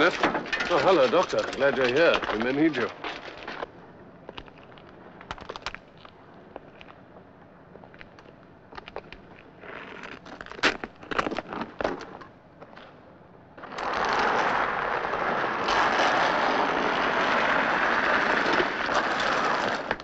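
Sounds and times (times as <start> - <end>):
body scraping on road: 0.0 - 7.0, 13.6 - 20.0
scuffs and clicks: 0.0 - 7.2.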